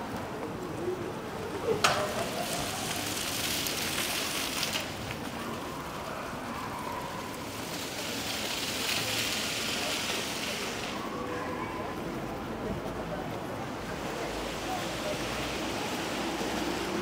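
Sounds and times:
rushing water hiss: 0:02.1 - 0:05.1, 0:07.4 - 0:11.3, 0:13.7 - 0:17.0.

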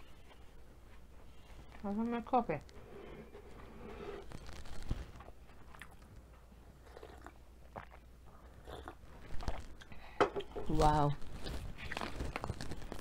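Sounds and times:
person chewing: 0:05.6 - 0:10.6, 0:11.2 - 0:13.0.

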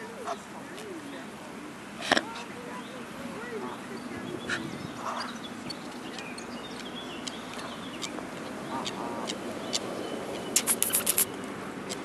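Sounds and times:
short bird call: 0:10.5 - 0:11.4
swan bill tearing grass: 0:10.6 - 0:12.0.

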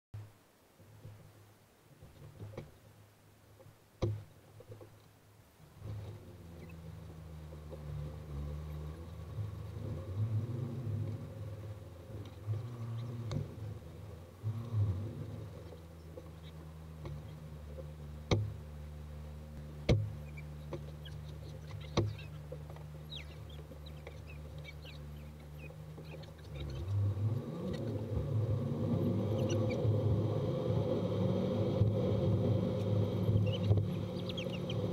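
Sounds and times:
sharp clicks and knocks: 0:03.6 - 0:05.2, 0:12.2 - 0:13.6, 0:15.5 - 0:18.6, 0:19.6 - 0:27.0
car engine humming: 0:04.0 - 0:34.9.

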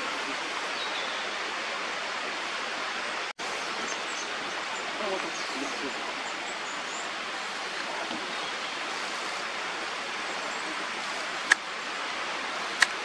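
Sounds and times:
steady rushing noise: 0:01.8 - 0:13.0
sharp clicks: 0:12.6 - 0:13.0.

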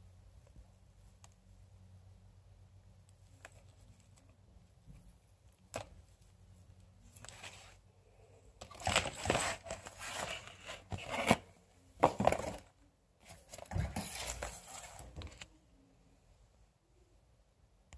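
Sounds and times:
cardboard box rustling: 0:08.7 - 0:15.5.

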